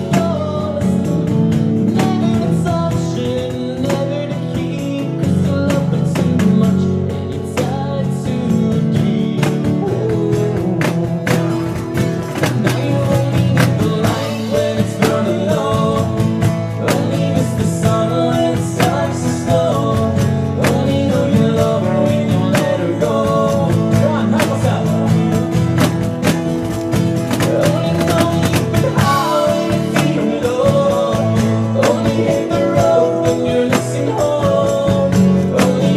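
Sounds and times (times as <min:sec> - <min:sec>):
guitar strumming: 0:00.0 - 0:35.9.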